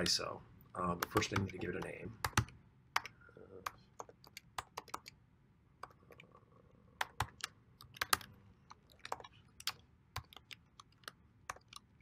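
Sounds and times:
keyboard typing: 1.0 - 5.2, 7.0 - 12.0.

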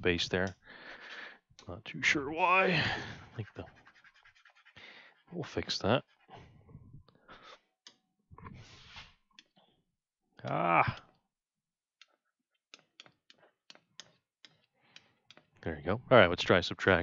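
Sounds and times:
breath: 0.6 - 1.4, 4.8 - 5.2, 7.1 - 7.7, 14.8 - 15.3
person humming: 10.4 - 11.0
stylus tapping on tablet: 12.0 - 15.6.

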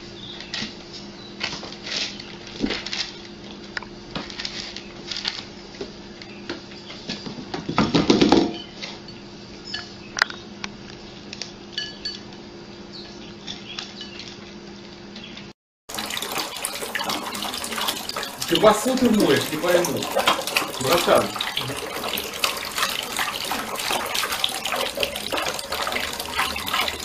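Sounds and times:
low steady hum: 15.9 - 27.0
tap running into sink: 15.9 - 27.0.

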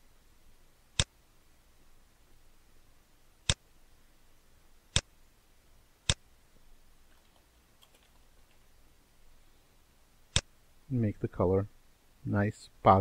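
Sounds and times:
computer mouse clicks: 7.1 - 8.6.

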